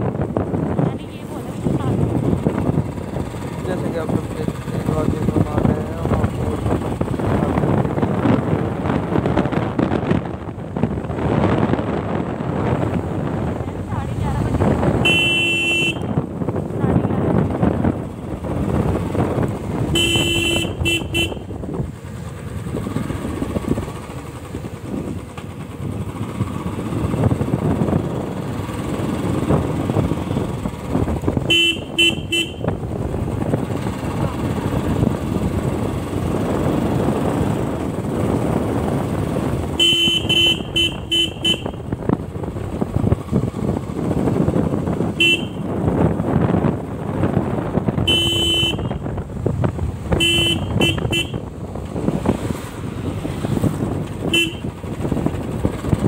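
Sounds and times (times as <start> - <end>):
motorcycle engine: 0.0 - 56.0
wind noise: 0.0 - 56.0
motorcycle horn toots: 14.9 - 16.3, 19.8 - 21.6, 31.4 - 32.9, 39.6 - 42.0, 45.0 - 45.8, 47.9 - 49.1, 50.1 - 51.5, 54.1 - 54.8.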